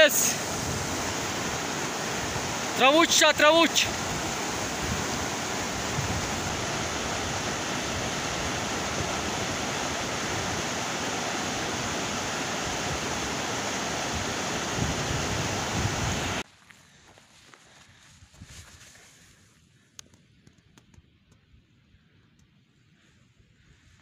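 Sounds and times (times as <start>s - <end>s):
river rushing over rocks: 0.0s - 16.4s.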